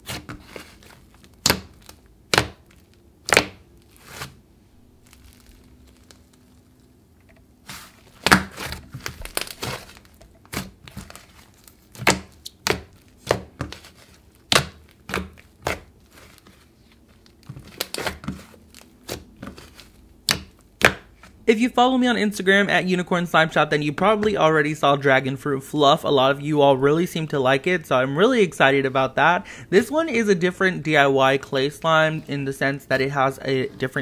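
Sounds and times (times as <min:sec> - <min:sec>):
slime clicking and crackling: 0:08.2 - 0:16.5.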